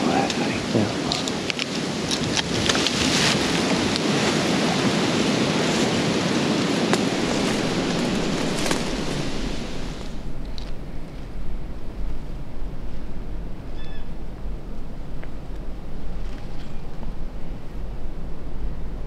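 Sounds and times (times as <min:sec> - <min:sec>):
clothing rustling against microphone: 0:07.0 - 0:13.1.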